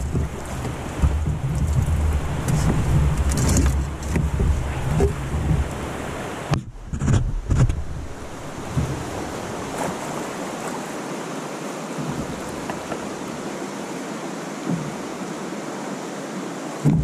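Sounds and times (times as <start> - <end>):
low thumps: 0.0 - 9.5
stream rushing: 0.0 - 17.0.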